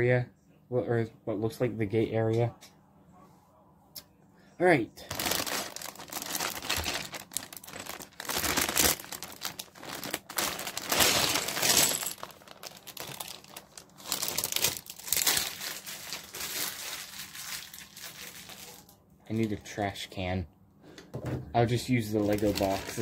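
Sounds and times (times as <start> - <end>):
plastic bag crinkling: 5.0 - 19.5, 21.8 - 23.0.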